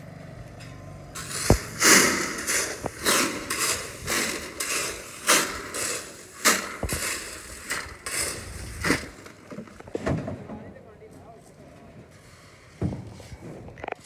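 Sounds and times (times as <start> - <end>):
footsteps crunching on gravel: 1.2 - 10.0.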